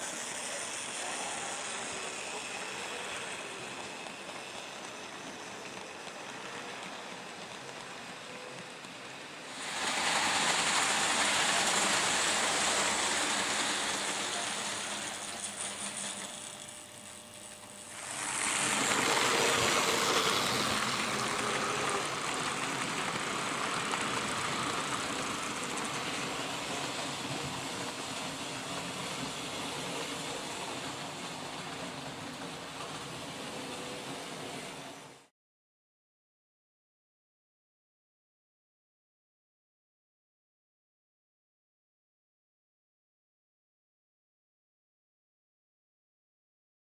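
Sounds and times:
model train clattering on track: 0.2 - 16.6, 18.0 - 33.2.

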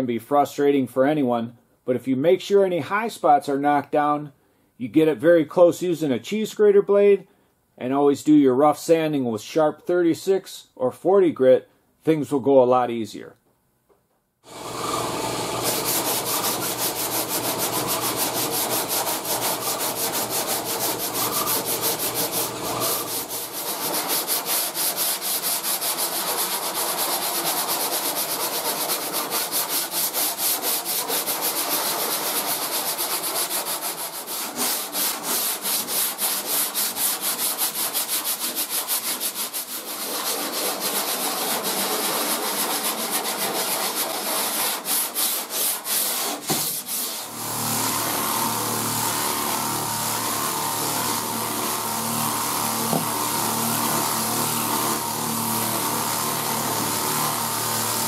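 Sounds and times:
sandpaper rasping back and forth: 14.5 - 58.0.

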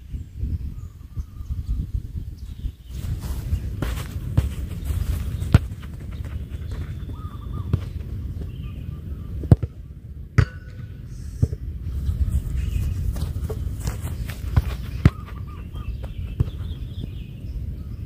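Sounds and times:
wind rumble on microphone: 0.0 - 18.0
football kicked hard: 3.0 - 8.6, 9.4 - 9.8, 10.4 - 10.8, 11.4 - 17.3.

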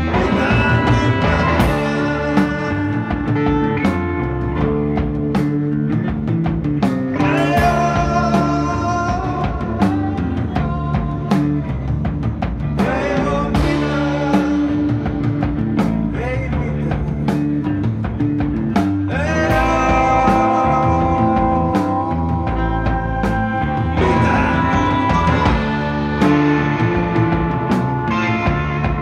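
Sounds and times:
rock band playing: 0.0 - 29.0
woman singing: 7.2 - 11.6, 19.1 - 26.0.

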